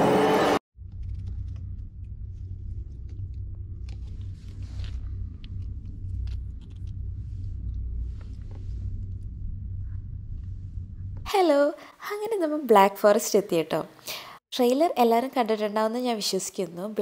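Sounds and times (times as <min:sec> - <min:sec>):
car cabin rumble: 0:00.8 - 0:11.3.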